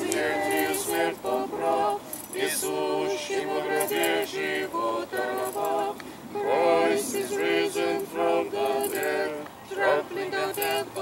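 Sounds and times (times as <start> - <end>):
group singing a hymn: 0.0 - 11.0.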